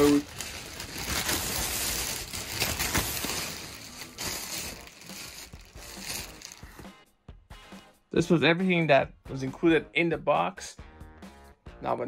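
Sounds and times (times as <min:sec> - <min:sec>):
plastic wrapping crinkling: 0:00.0 - 0:06.8.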